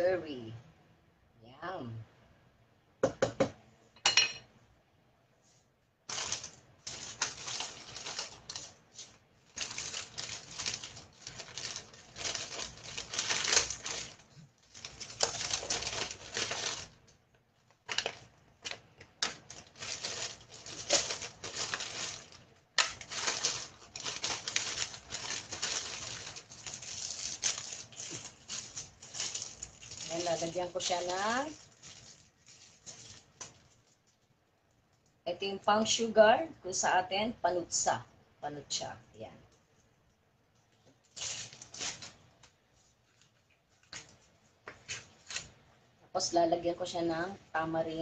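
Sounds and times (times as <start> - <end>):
plastic wrapping crinkling: 6.0 - 35.1, 40.6 - 45.6.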